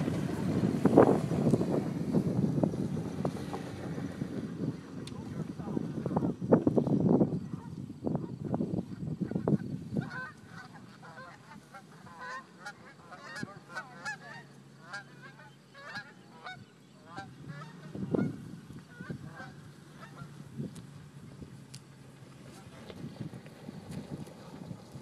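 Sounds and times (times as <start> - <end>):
faint engine hum: 0.0 - 25.0
birds honking: 9.2 - 20.5.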